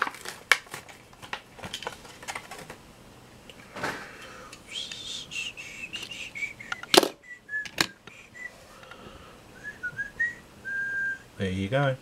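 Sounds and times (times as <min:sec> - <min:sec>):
faint whistle-like notes: 0:04.7 - 0:08.6.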